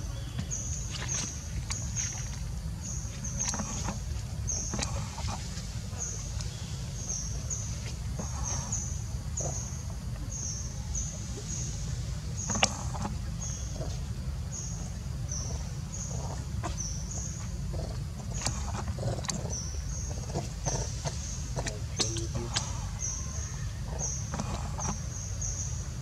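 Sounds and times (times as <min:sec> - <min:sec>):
monkeys chewing fruit: 0:12.4 - 0:25.8.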